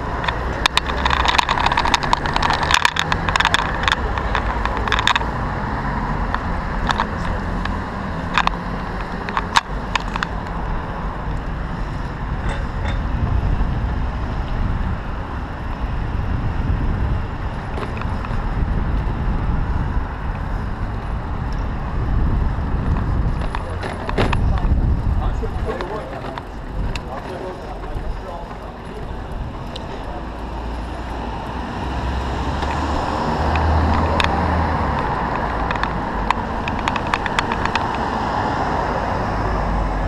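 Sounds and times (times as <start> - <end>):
cars passing: 0.0 - 40.0
road rumble: 0.0 - 40.0
wind: 0.0 - 40.0
bicycle rattling clicks: 0.2 - 5.3, 6.3 - 10.5, 17.7 - 19.1, 32.2 - 38.7.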